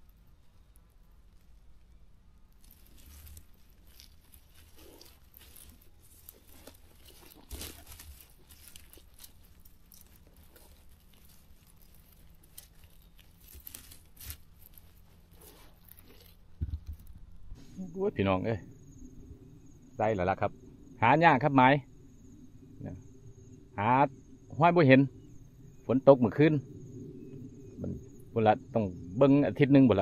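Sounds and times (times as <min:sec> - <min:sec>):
dry grass rustling and crackling: 0:00.0 - 0:20.4.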